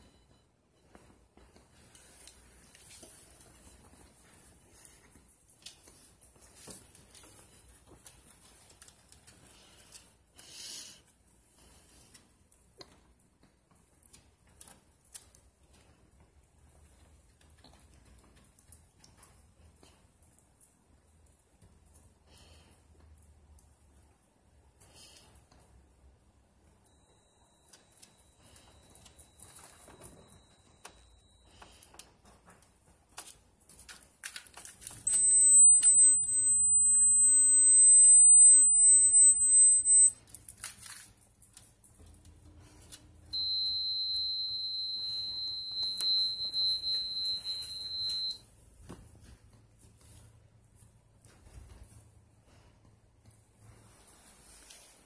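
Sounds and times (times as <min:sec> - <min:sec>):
high-pitched electronic tones: 0:26.9 - 0:31.9, 0:35.1 - 0:40.1.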